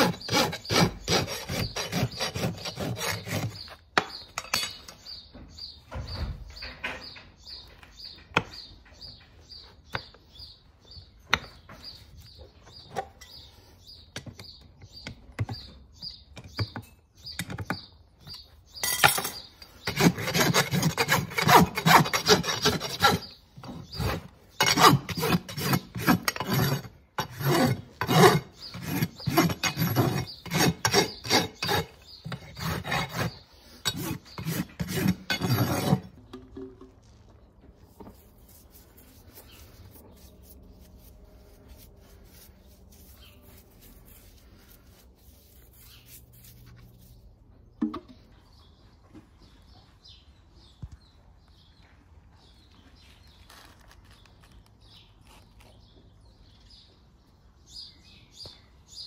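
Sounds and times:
rasp filing a hoof: 0:00.0 - 0:05.8, 0:11.2 - 0:36.2, 0:37.8 - 0:47.4.

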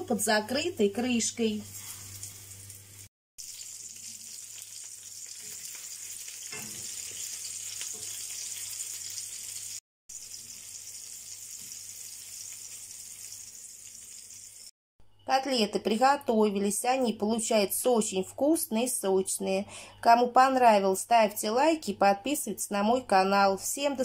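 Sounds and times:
meat sizzling in a frying pan: 0:01.1 - 0:14.7.

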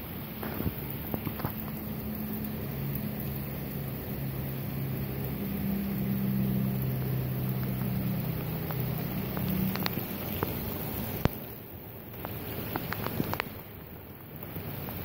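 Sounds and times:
heavy rain falling: 0:00.0 - 0:15.0
sharp drips: 0:00.0 - 0:15.0
low droning hum: 0:00.2 - 0:11.3.

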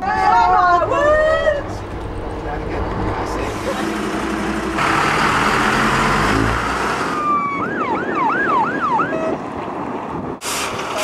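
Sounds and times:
fire engine rushing noise: 0:00.6 - 0:11.0
siren yelping: 0:07.1 - 0:09.4.

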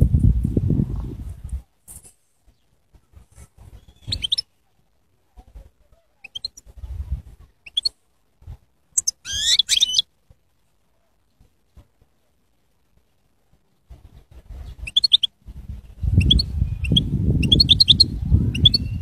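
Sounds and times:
goldfinch twittering song: 0:03.8 - 0:04.4, 0:09.0 - 0:10.0.

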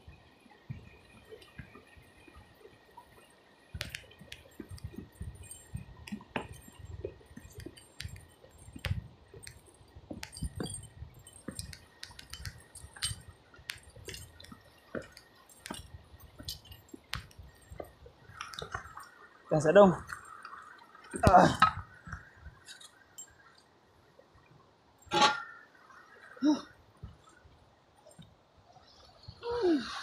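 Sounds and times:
footsteps on river rocks: 0:03.7 - 0:23.0
metal clinking on metal and stone: 0:03.8 - 0:19.2, 0:20.0 - 0:23.5.

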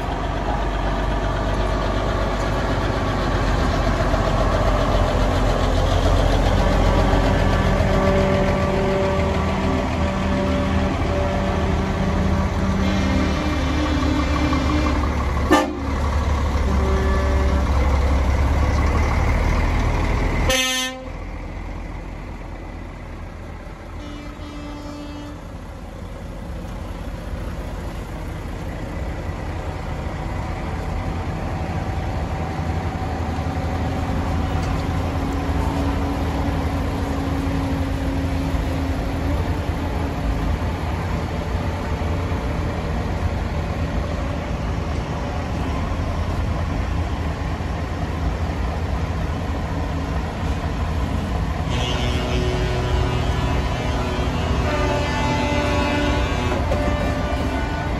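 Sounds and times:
diesel truck engines passing: 0:00.0 - 0:57.9
air horn toot: 0:10.2 - 0:15.8, 0:20.5 - 0:21.1, 0:24.0 - 0:25.4, 0:51.6 - 0:57.9.

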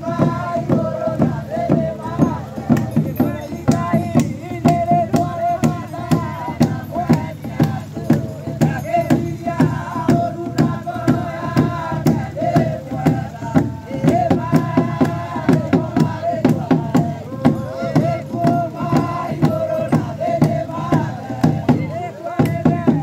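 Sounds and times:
congregation singing a hymn: 0:00.0 - 0:23.0
steady sharp beat: 0:00.0 - 0:23.0.

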